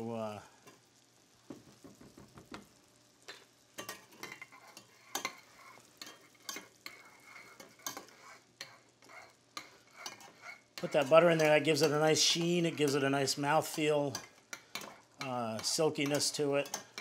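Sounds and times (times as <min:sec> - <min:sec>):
faint sizzle: 0:00.0 - 0:17.0
metal spoon clinking in saucepan: 0:03.8 - 0:05.4, 0:06.0 - 0:13.0, 0:14.1 - 0:17.0.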